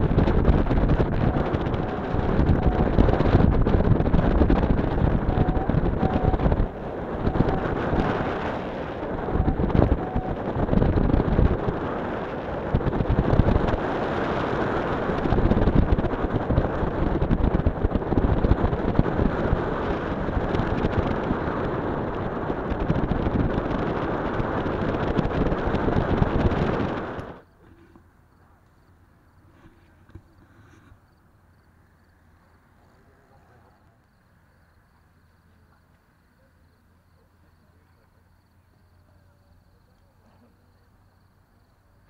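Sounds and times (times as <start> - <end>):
wind buffeting microphone: 0.0 - 28.0.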